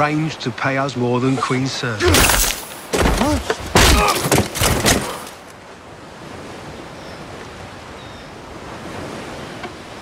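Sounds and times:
wind: 0.0 - 10.0
surf washing on shore: 5.0 - 10.0.

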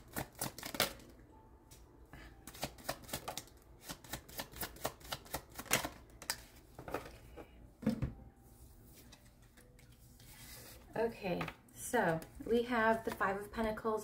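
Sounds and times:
cards shuffling clicks: 0.0 - 1.1, 2.4 - 7.2.

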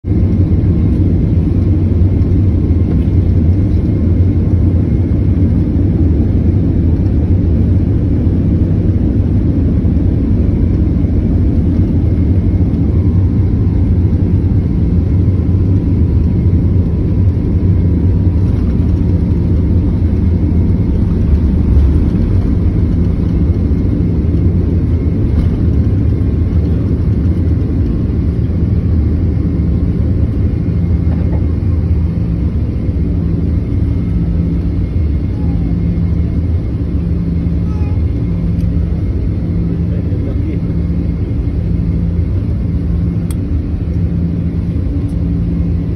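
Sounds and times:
jet airliner cabin rumble: 0.0 - 45.9
faint high hums: 17.3 - 42.4.

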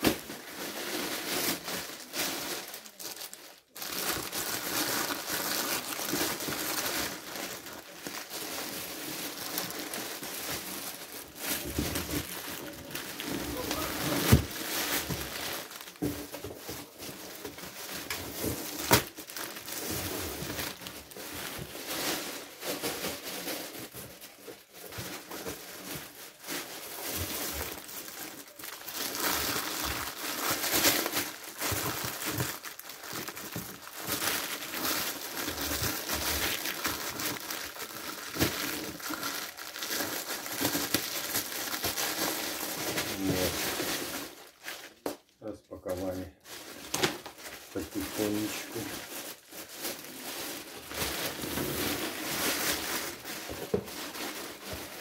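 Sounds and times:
plastic film crinkling: 0.0 - 55.0
plastic film snapping: 18.8 - 19.4, 46.9 - 47.4.

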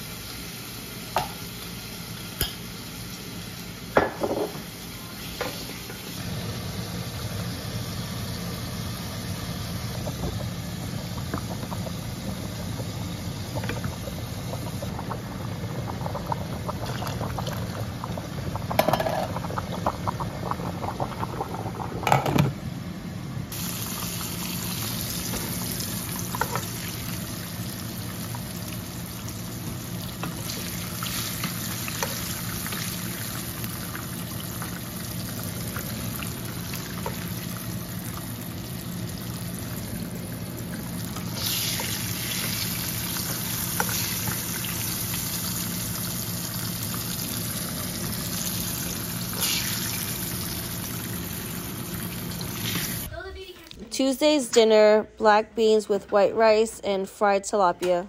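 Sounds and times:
pot boiling: 0.0 - 53.2
fish frying in hot oil: 6.8 - 22.1, 23.5 - 53.1.

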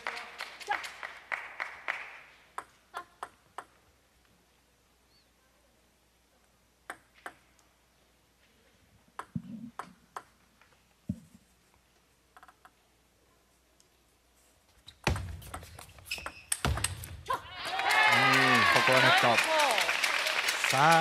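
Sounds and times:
sports hall noise: 0.0 - 10.4, 13.2 - 21.0
table tennis ball ticks: 6.8 - 7.7, 9.2 - 10.4.

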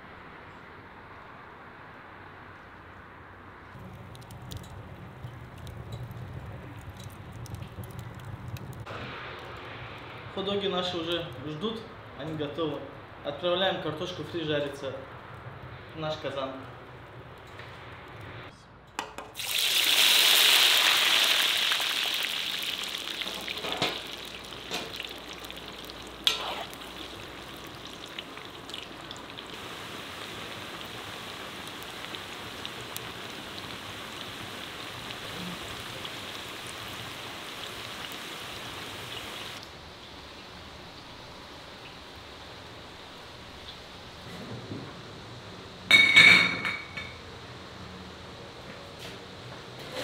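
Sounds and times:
fries sizzling in hot oil: 19.4 - 43.4.

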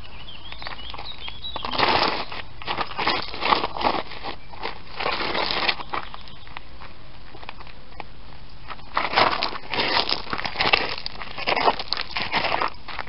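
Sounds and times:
shoes scraping across gravel: 0.0 - 13.0
small stones clicking: 8.9 - 13.0.

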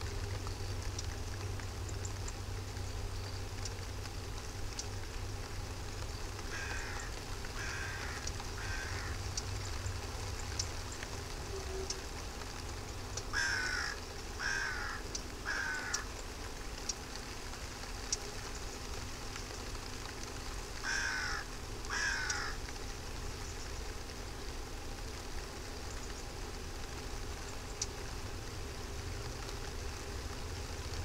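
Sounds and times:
steady background hiss: 0.0 - 31.0
bird calling: 6.4 - 12.1, 13.3 - 16.3, 20.8 - 22.6.

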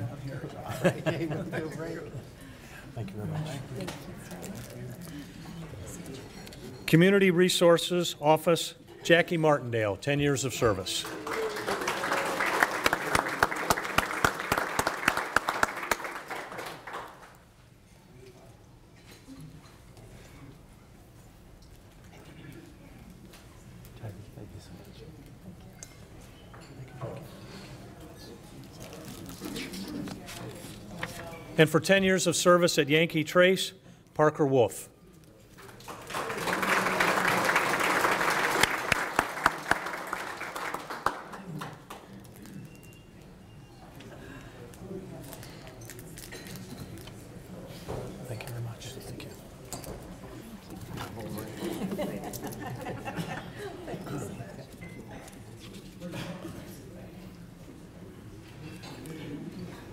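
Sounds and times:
audience applauding: 10.9 - 17.4, 35.7 - 42.0.

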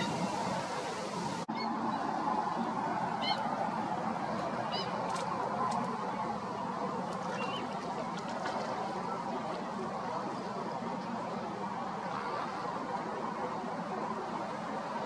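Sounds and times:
flamingos honking: 0.0 - 1.8, 4.6 - 5.0.

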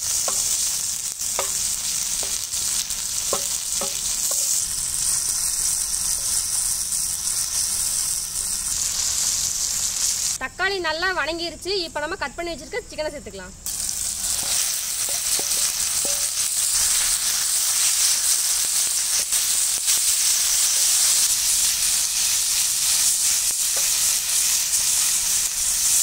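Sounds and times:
chicken sizzling in a pan: 0.0 - 10.4, 13.6 - 26.0
spatula tapping a pan: 0.2 - 0.6, 1.3 - 2.5, 3.2 - 4.6, 15.0 - 16.4.

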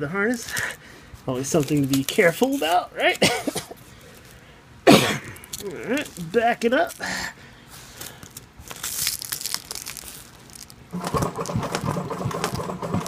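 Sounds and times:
fabric rustling and crinkling: 1.2 - 2.8, 5.4 - 7.1, 7.7 - 12.8
sewing machine running: 10.9 - 13.0.

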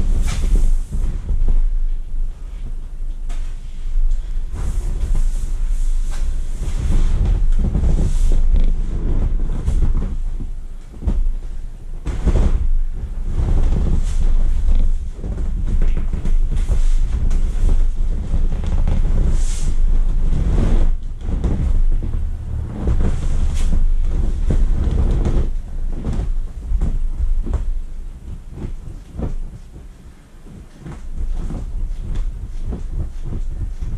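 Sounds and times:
low rumble: 0.0 - 33.9
thumps and rubbing on vinyl: 0.0 - 33.9.

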